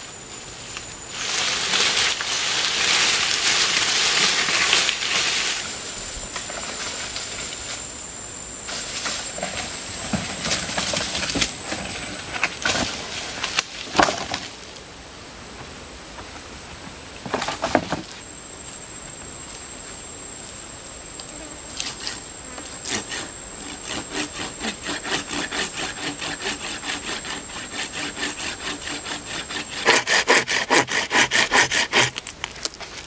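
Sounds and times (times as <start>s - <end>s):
branch dragged through dry leaves: 0.6s - 7.9s.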